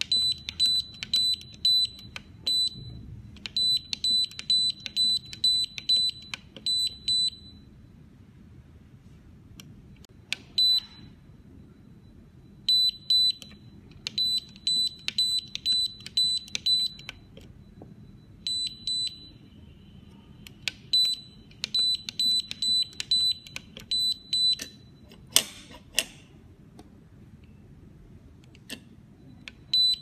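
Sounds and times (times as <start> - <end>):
key clicks: 0.0 - 2.7, 3.4 - 7.3
keypad beeping: 0.0 - 7.8, 10.0 - 26.1, 27.4 - 30.0.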